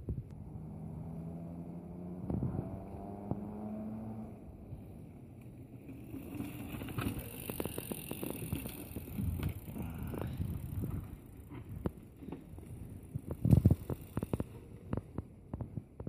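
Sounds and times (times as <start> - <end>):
quick clicks and knocks from bike: 5.4 - 16.0
bike tyres rumbling over rock: 6.0 - 16.0.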